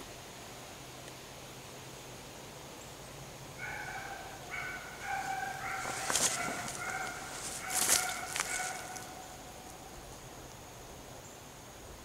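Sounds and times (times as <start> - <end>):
hounds baying: 3.6 - 9.9
rustling close by: 5.0 - 9.8.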